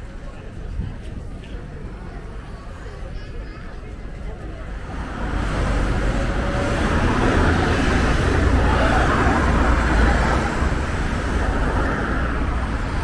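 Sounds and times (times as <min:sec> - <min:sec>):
cars and vans passing: 0:04.4 - 0:13.0.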